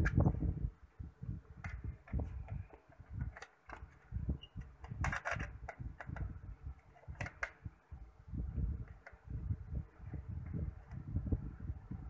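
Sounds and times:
plastic clicks and rattles: 0:01.6 - 0:04.0, 0:04.6 - 0:07.7.

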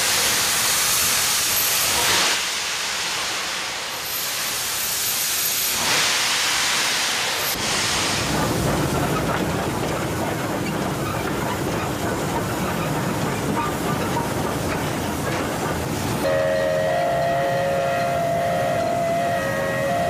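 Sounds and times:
steam locomotive running: 0:00.0 - 0:20.0
two-note steam whistle: 0:16.2 - 0:20.0.

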